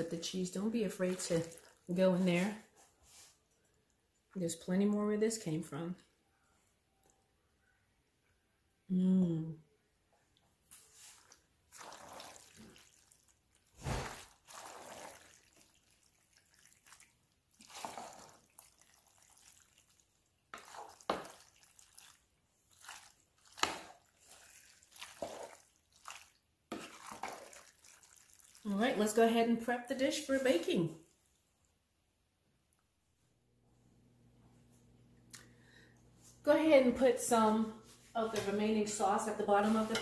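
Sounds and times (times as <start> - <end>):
wet mixing of pasta: 0.0 - 6.0, 10.3 - 31.3, 38.1 - 40.0.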